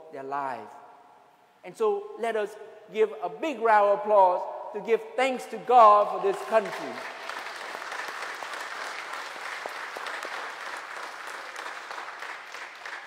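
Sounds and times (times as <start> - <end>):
crowd clapping: 6.3 - 13.0.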